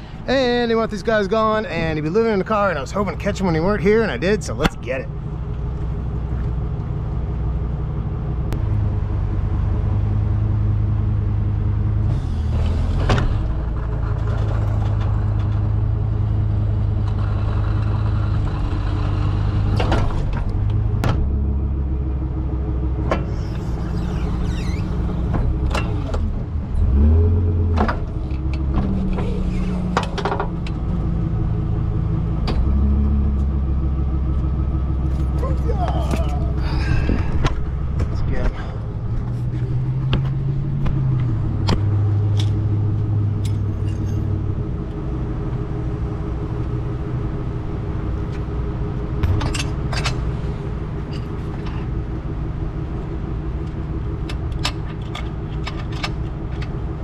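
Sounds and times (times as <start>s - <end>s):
truck engine running: 0.0s - 57.0s
metal clanks: 43.2s - 44.4s, 49.2s - 52.0s.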